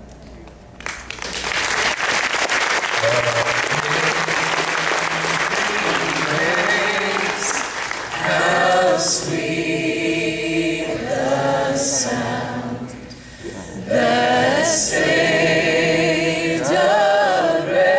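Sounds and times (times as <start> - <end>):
group of voices singing: 3.7 - 17.9.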